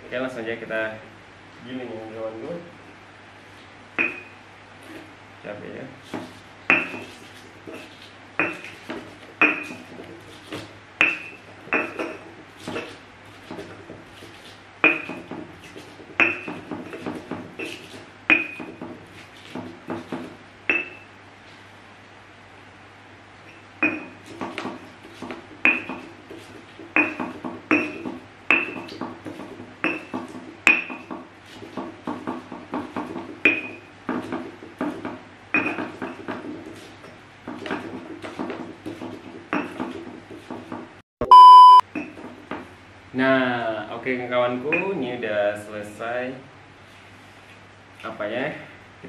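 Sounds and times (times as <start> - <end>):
stone pestle pounding in mortar: 4.0 - 4.3, 6.1 - 21.1, 23.8 - 41.0.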